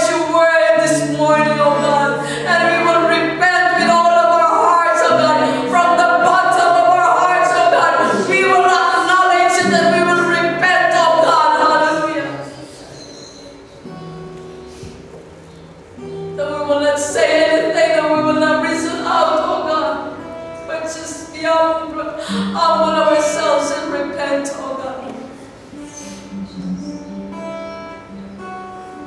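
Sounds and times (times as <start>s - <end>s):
woman singing: 0.0s - 12.4s, 16.4s - 25.3s.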